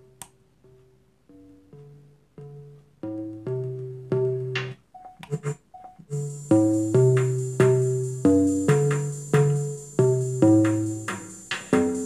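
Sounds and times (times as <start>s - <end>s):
sharply struck notes beat: 1.8s - 12.0s
music with strong bass: 3.2s - 12.0s.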